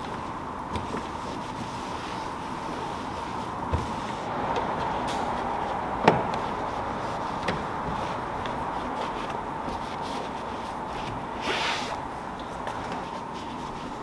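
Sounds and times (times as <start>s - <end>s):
steady background noise: 0.0s - 14.0s
towel rubbing a plastic panel: 0.1s - 4.9s, 5.6s - 12.0s.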